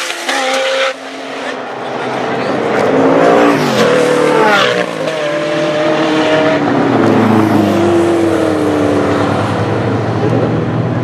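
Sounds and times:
race car engine at full throttle: 0:00.0 - 0:11.0.

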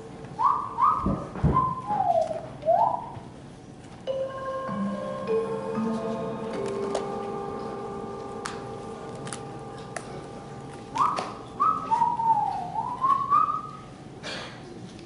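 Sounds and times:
whistled tune: 0:00.4 - 0:03.1, 0:10.9 - 0:13.9
ringing mallet percussion notes: 0:04.1 - 0:10.7.

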